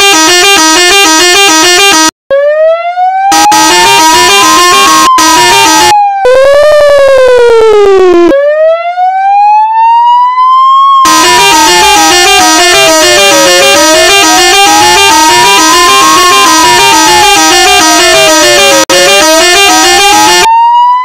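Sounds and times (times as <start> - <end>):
electronic siren wail: 0.0 - 21.0
buzzy pulsing siren tone: 3.3 - 8.4, 11.1 - 20.5.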